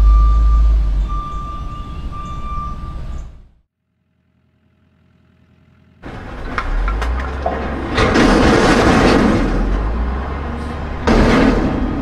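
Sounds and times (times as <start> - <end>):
reversing beeper: 0.0 - 3.5
truck engine running: 0.0 - 12.0.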